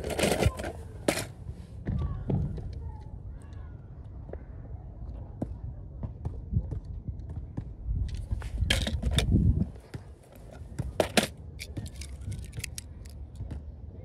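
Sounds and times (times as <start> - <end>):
toy cars clicking: 0.0 - 1.3, 10.4 - 13.4
microphone handling rumble: 8.0 - 10.0.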